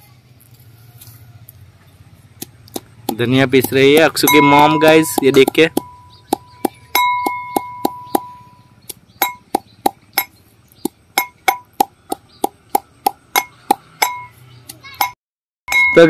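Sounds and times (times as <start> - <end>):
pestle pounding in mortar: 2.4 - 14.3.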